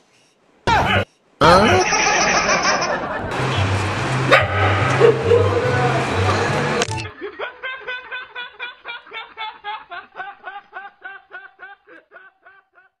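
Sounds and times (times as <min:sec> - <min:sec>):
young man laughing: 0:00.7 - 0:03.3, 0:07.1 - 0:13.0.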